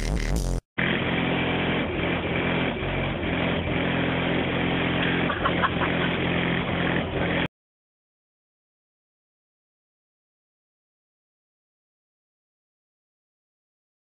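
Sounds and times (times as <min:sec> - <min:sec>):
car subwoofer bass drone: 0:00.0 - 0:00.6.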